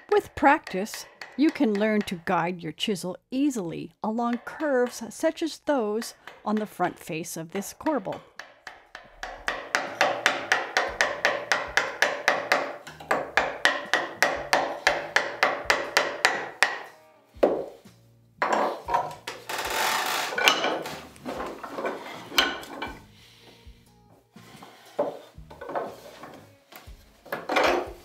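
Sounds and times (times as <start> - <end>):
mallet striking chisel: 0.0 - 2.5, 4.2 - 17.8
rubbing and scraping: 18.4 - 23.2, 24.4 - 28.0.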